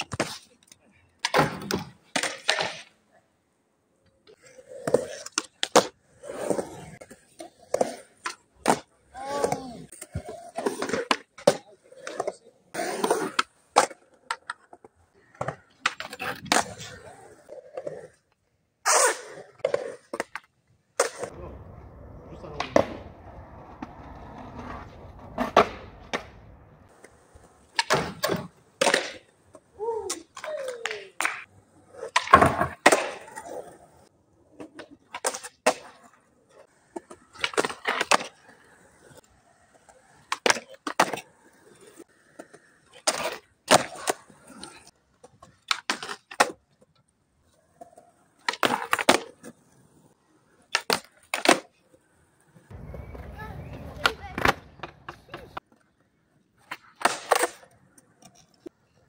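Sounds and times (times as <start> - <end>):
skateboard wheels rolling on concrete: 0.0 - 59.0
skateboard tail pops and landings: 1.2 - 2.9, 22.6 - 29.3, 30.0 - 33.6, 48.4 - 49.5, 52.7 - 55.7, 56.6 - 58.4.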